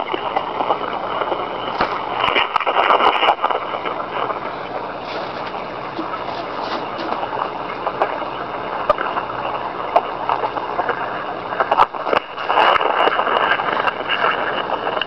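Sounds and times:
fabric rustling: 4.9 - 7.5.

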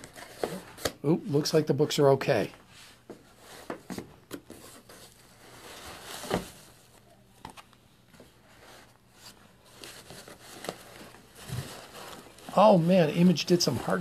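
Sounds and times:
paper rustling: 8.5 - 14.0.

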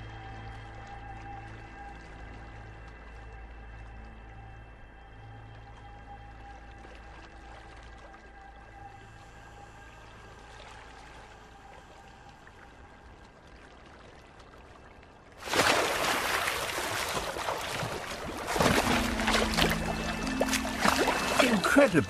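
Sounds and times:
water sloshing and splashing: 0.0 - 22.0
loud water splash: 15.4 - 22.0.

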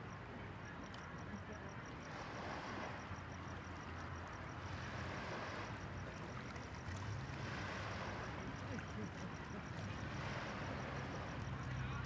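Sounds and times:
distant city traffic hum: 0.0 - 12.0.

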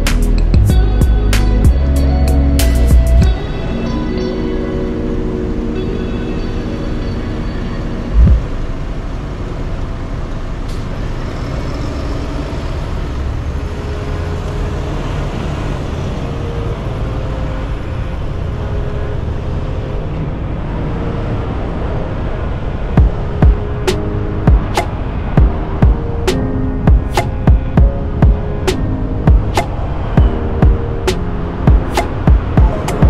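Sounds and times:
car engine and road noise: 0.0 - 33.0
loud low thump: 8.2 - 8.5.

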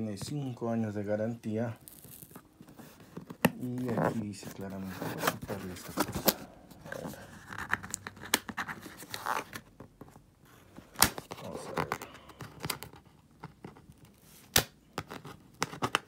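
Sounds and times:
strap scraping on cardboard: 1.8 - 9.7.

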